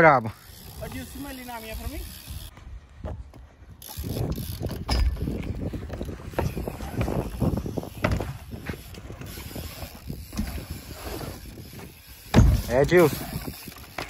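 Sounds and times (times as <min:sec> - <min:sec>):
bike tyres rumbling over wood: 0:02.2 - 0:14.0
bike knocks and clicks: 0:02.4 - 0:10.9, 0:11.6 - 0:14.0.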